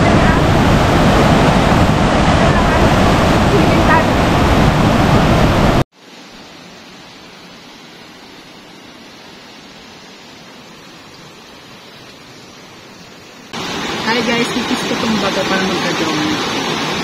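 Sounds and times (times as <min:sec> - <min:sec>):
faint steady hiss: 0:06.0 - 0:16.8.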